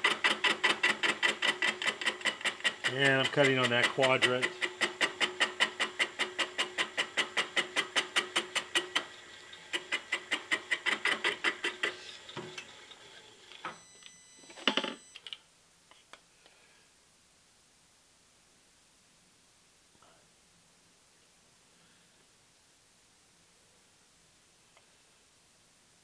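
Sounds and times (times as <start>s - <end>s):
cutter ticking on metal: 0.0s - 9.1s.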